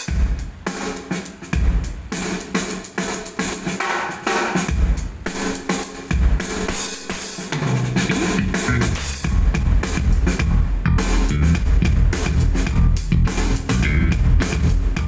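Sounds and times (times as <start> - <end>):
loud drum-heavy music: 0.0 - 15.0
deep bass thumps: 8.0 - 15.0.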